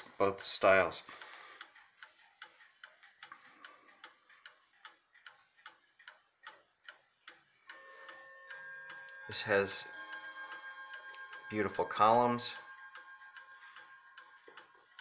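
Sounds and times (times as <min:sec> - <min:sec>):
clock ticking: 0:00.0 - 0:15.0
ringing tone: 0:07.7 - 0:15.0.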